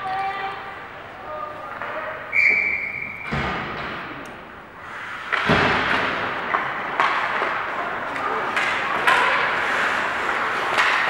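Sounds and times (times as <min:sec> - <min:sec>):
ice rink noise: 0:00.0 - 0:11.0
high whistle-like tone: 0:02.3 - 0:03.3.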